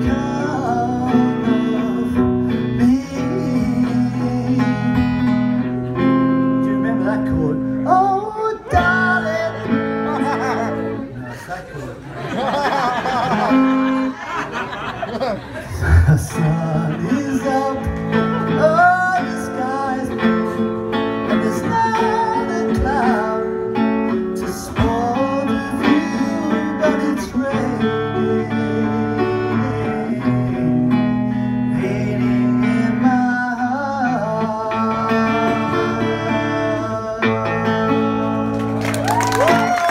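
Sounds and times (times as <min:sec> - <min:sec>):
person singing: 0:00.0 - 0:06.0, 0:15.7 - 0:39.9
electric guitar chords: 0:00.0 - 0:11.1, 0:15.7 - 0:39.9.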